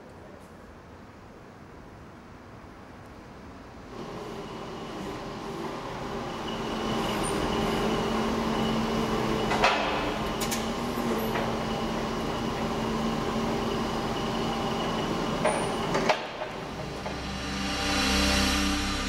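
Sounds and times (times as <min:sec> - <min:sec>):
forklift engine droning: 0:03.9 - 0:19.0.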